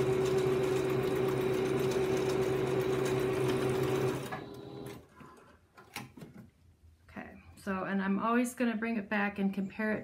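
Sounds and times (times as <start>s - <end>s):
electric sewing machine running: 0.0s - 5.0s.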